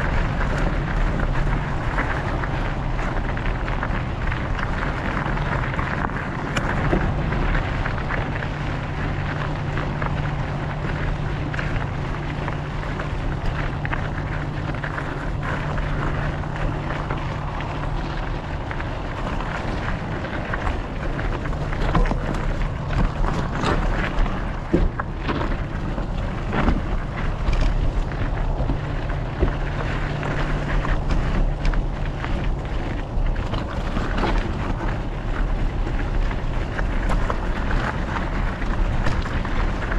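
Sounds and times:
bike rattling: 0:00.0 - 0:39.9
tyres crunching on gravel: 0:00.0 - 0:39.9
wind noise on microphone: 0:00.0 - 0:39.9.

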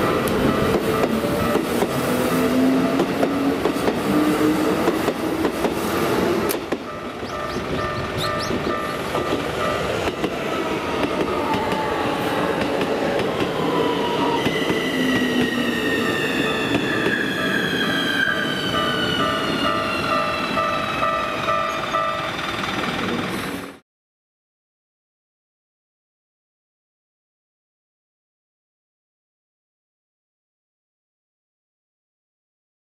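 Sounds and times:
level crossing warning bell: 0:00.0 - 0:03.0, 0:06.8 - 0:12.1, 0:15.6 - 0:23.0
train running over crossing: 0:00.0 - 0:23.8.

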